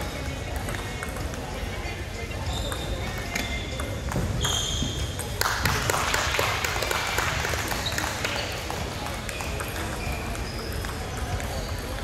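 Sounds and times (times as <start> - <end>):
table tennis balls clicking: 0.3 - 1.6, 2.6 - 5.9, 7.6 - 12.0
short high squeaks: 4.4 - 5.1.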